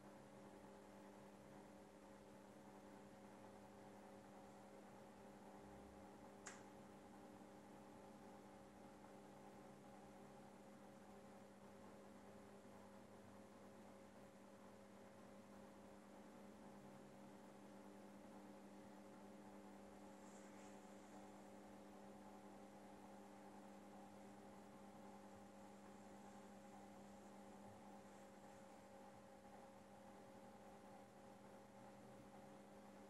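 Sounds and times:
faint electrical hum: 0.0s - 33.0s
faint tick: 6.4s - 6.7s.

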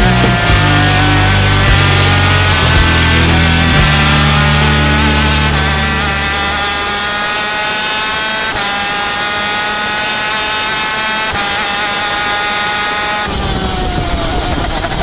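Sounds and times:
music track: 0.0s - 7.4s
racing engine high revs whine: 0.0s - 15.0s.

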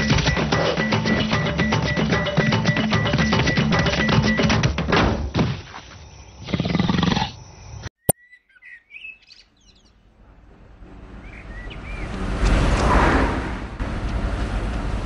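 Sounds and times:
music: 0.0s - 5.1s
faint bird chirps: 7.6s - 10.0s
car approaching on road: 10.0s - 15.0s.

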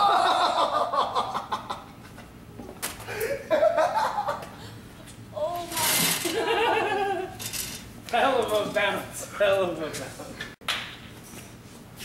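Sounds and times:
boys laughing: 0.0s - 2.3s, 3.0s - 4.8s, 5.8s - 7.4s.

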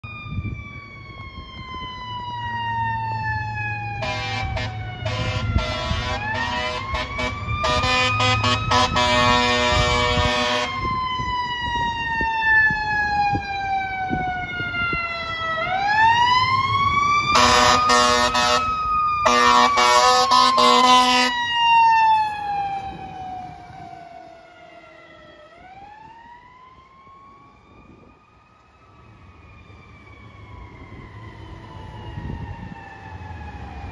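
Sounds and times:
fire truck siren wailing: 0.0s - 33.9s
air horn blasts: 4.0s - 10.8s, 17.3s - 21.4s.

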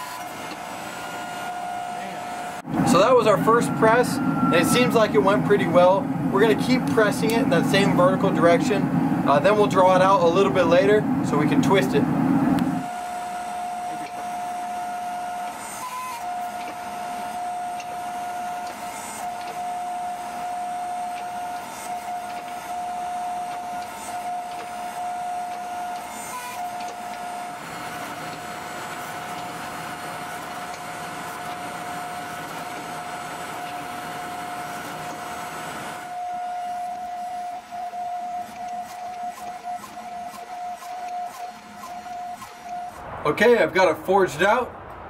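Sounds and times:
hydraulic press whining: 0.0s - 43.0s
deep hum: 1.8s - 12.8s, 43.0s - 45.0s.

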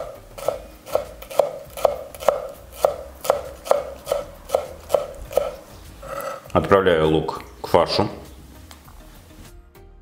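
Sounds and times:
knife chopping on wooden board: 0.0s - 6.4s.

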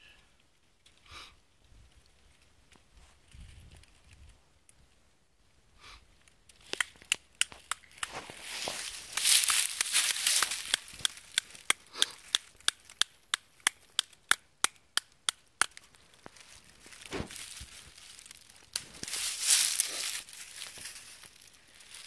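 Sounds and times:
dry leaves rustling: 7.6s - 13.0s, 15.8s - 22.0s.

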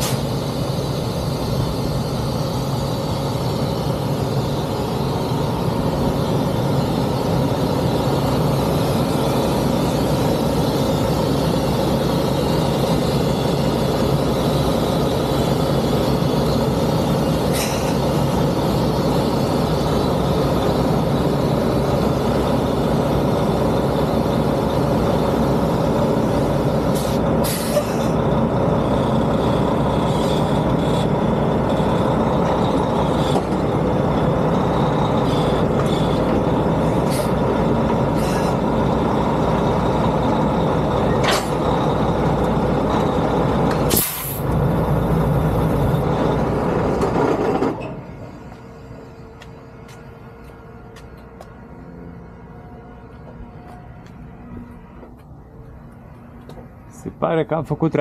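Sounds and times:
air brake hisses: 0.0s - 0.7s, 17.4s - 18.3s, 26.9s - 28.2s, 37.0s - 37.4s, 38.1s - 38.6s, 43.9s - 44.5s
diesel truck engine running: 0.0s - 58.0s.

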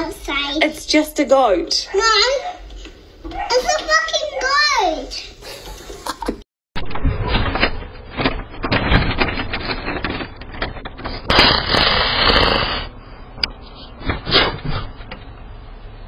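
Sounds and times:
animal rubbing against camera: 11.4s - 12.9s.

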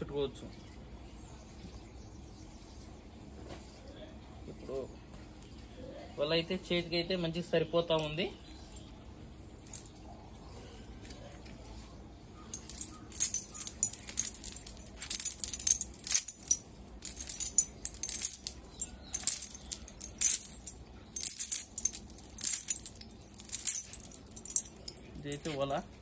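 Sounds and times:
lead sinkers jangling: 9.7s - 9.9s, 12.5s - 26.0s.

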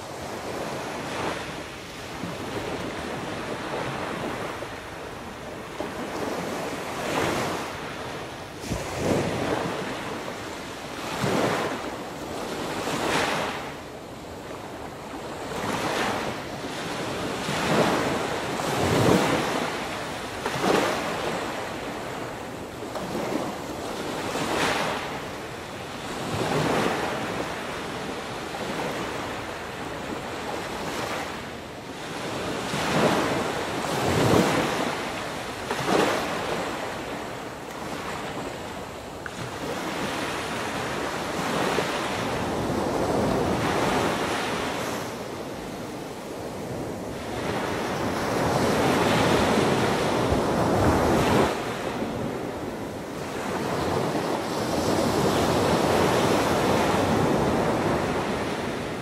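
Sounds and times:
wind on microphone: 0.0s - 59.0s
ocean waves breaking: 26.0s - 59.0s.

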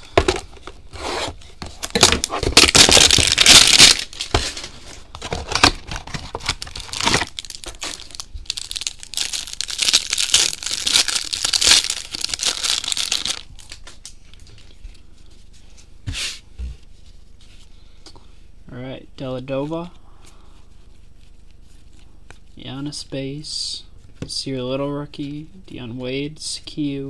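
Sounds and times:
plastic wrapper tearing and crinkling: 1.8s - 14.2s.

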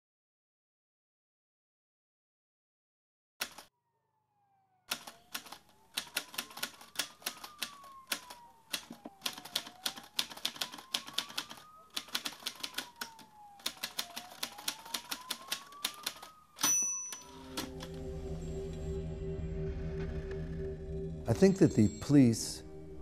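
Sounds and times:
faint siren wailing: 3.6s - 23.0s
typewriter keystrokes clattering: 4.9s - 17.7s
typewriter bell ding: 16.6s - 17.7s.

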